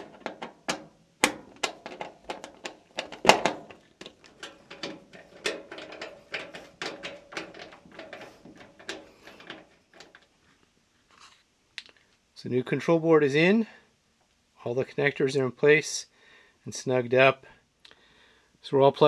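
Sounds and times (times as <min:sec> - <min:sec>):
sharp metallic clicks and taps: 0:00.0 - 0:10.3.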